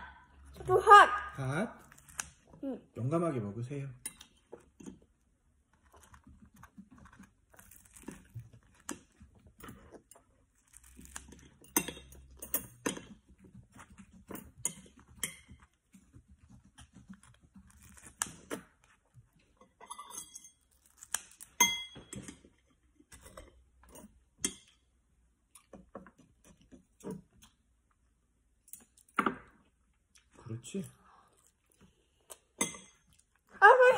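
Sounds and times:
cutlery clinking on plates: 19.7 - 20.6.

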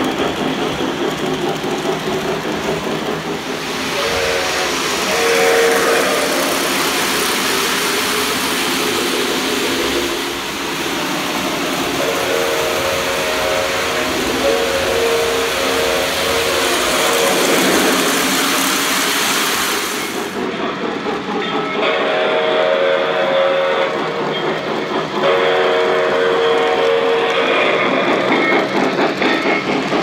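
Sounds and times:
model trains rumbling on track: 0.0 - 30.0
model train steam whistle: 3.6 - 8.1, 11.8 - 19.0, 21.7 - 24.4, 25.2 - 28.7.

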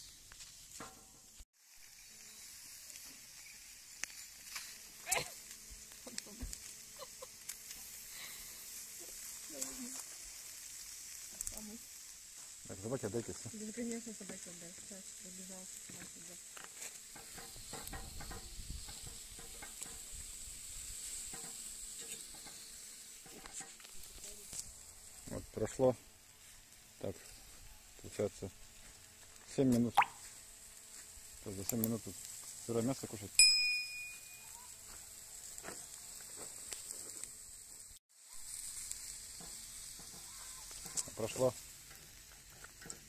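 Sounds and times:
light crackles: 0.0 - 43.0
meat sizzling on grill: 0.0 - 43.0.

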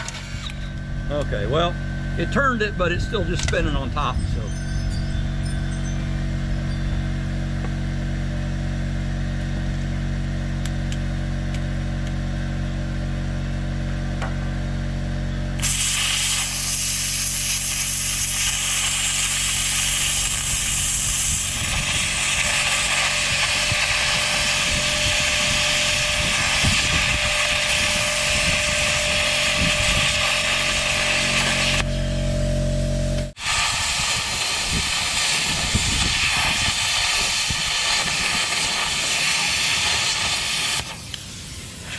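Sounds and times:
steady machine hum: 0.0 - 41.9
plasma cutter arc hissing: 15.6 - 41.9.

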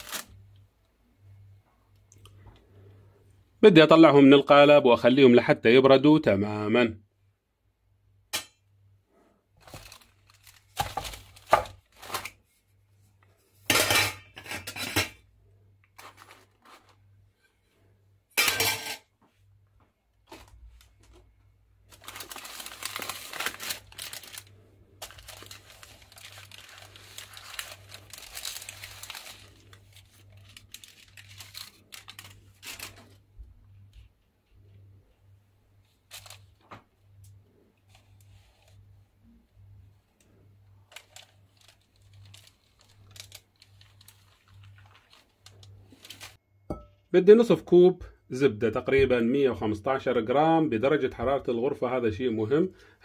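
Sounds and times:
baking paper rustling: 0.0 - 0.4, 9.6 - 13.7, 15.9 - 17.5, 20.2 - 33.5, 35.8 - 36.8, 37.8 - 39.0, 40.8 - 46.4.

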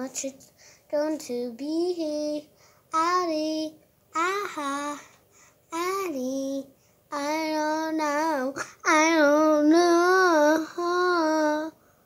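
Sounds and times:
girl singing long notes: 0.9 - 11.8.

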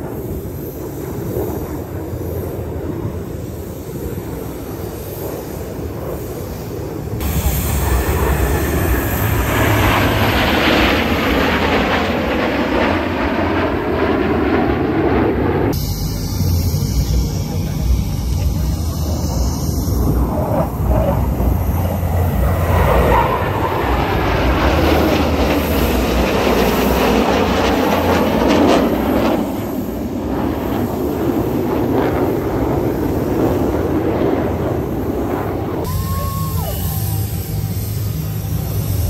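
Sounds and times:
jet aircraft flying overhead: 0.0 - 39.0.

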